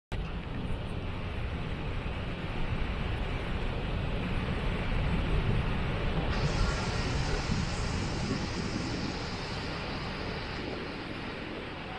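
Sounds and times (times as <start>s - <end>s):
waterfall roaring: 3.6s - 11.9s.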